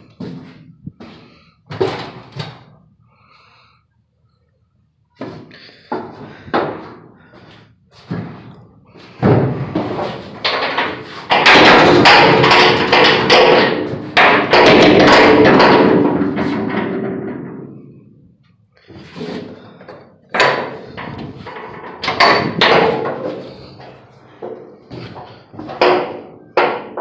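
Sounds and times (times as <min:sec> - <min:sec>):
metal gate clattering and ringing: 0:20.4 - 0:23.8.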